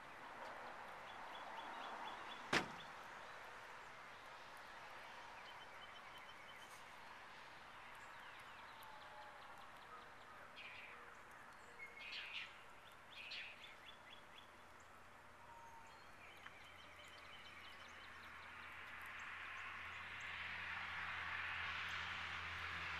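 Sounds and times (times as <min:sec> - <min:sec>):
bird chirps: 0:07.9 - 0:18.5.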